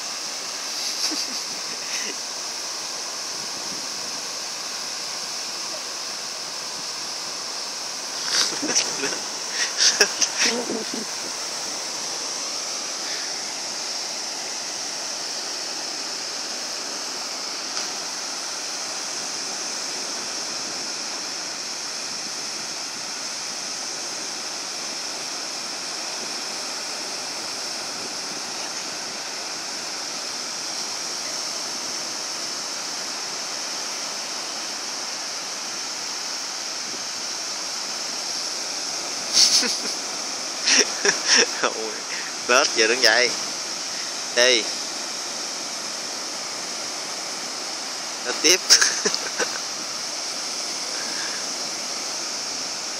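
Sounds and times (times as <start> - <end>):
small waves breaking on sand: 0.0 - 52.9.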